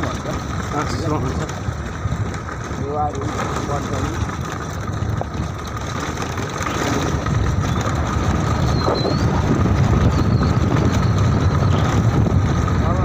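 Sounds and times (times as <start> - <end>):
vehicle engine and road rumble: 0.0 - 13.0.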